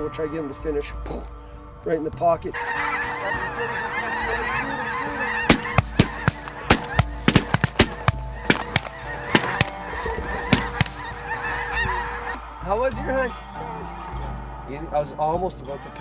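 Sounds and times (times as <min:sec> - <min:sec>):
snow geese honking: 0:02.4 - 0:16.0
sharp cracks or pops: 0:05.5 - 0:11.1.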